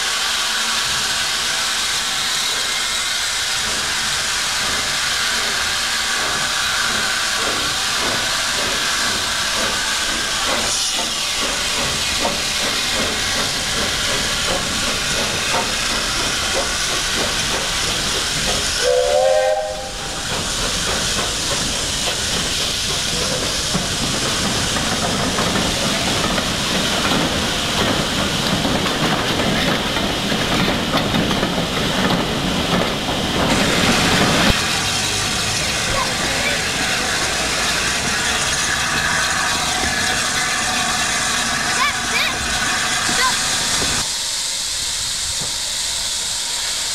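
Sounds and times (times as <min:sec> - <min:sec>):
steam locomotive hissing: 0:00.0 - 0:46.9
train moving off: 0:00.0 - 0:46.9
steam whistle: 0:18.8 - 0:20.2.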